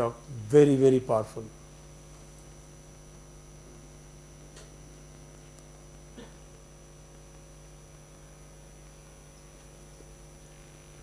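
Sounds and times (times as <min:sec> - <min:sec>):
electrical mains hum: 0:00.0 - 0:11.0
faint room noise: 0:00.0 - 0:11.0.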